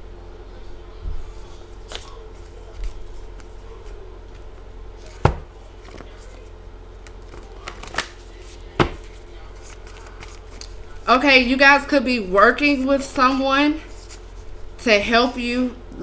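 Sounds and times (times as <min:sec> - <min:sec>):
faint steady hum: 0:00.0 - 0:16.0
paper cards being shuffled: 0:01.8 - 0:04.4, 0:05.8 - 0:10.9.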